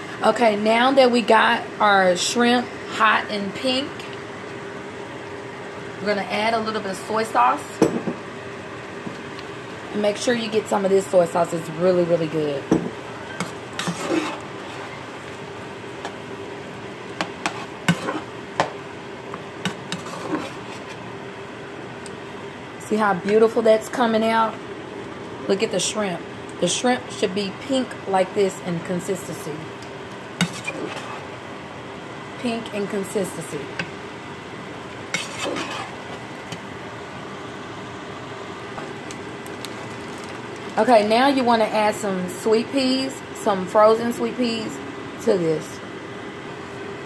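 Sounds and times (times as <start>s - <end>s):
faint hum: 0.0s - 47.0s
spatula stirring in a wok: 13.2s - 15.4s, 17.2s - 18.7s, 19.6s - 21.1s, 30.3s - 31.4s, 35.1s - 36.6s
spatula scraping a pan: 13.3s - 15.0s, 17.4s - 18.3s, 19.7s - 21.0s, 30.4s - 31.3s, 35.1s - 36.1s.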